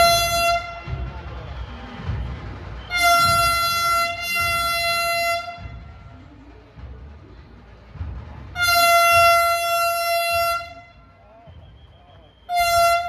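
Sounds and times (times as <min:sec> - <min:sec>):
train horn blasts: 0:00.0 - 0:01.2, 0:02.8 - 0:06.1, 0:08.5 - 0:11.2, 0:12.4 - 0:13.0
low rumble of train: 0:00.0 - 0:13.0.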